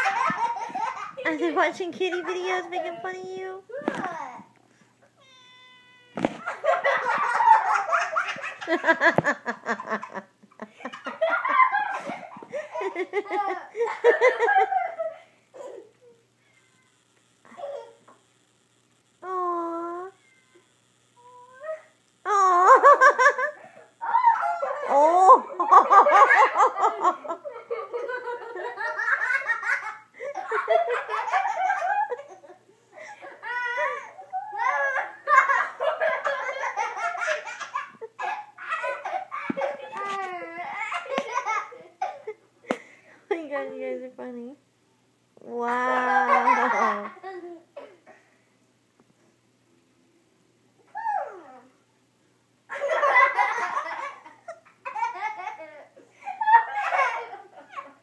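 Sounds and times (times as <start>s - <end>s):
children laughing: 0.0s - 4.5s, 5.2s - 16.3s, 17.4s - 18.2s, 21.2s - 42.9s, 45.7s - 48.0s, 52.7s - 58.0s.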